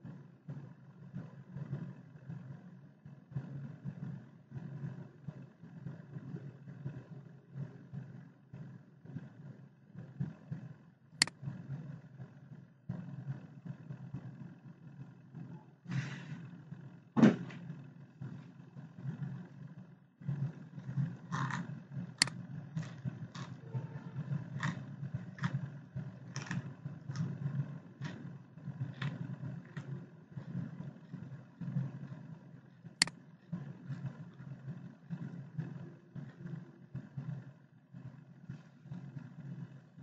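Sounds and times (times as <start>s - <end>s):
low background rumble: 0.0s - 40.0s
computer mouse clicks: 21.0s - 23.6s, 33.0s - 33.2s.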